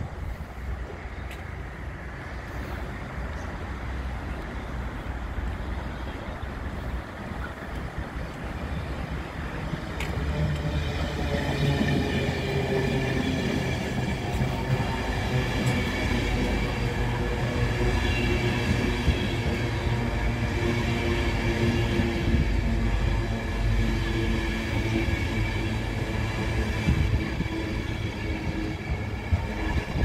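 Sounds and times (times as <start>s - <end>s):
train wheels rumbling on rail: 0.0s - 30.0s.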